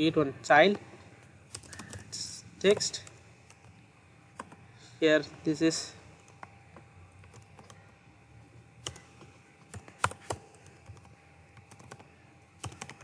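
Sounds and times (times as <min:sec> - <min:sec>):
typing on keyboard: 0:01.5 - 0:03.6, 0:07.2 - 0:07.8, 0:08.8 - 0:13.0.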